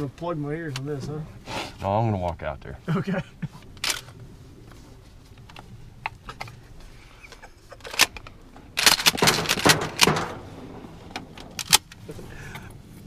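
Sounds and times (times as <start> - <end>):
clothing and reeds rustling: 2.7 - 7.8.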